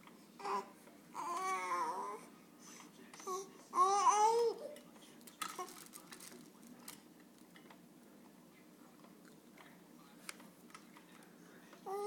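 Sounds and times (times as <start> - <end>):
baby babbling: 0.4 - 2.3, 3.2 - 4.8.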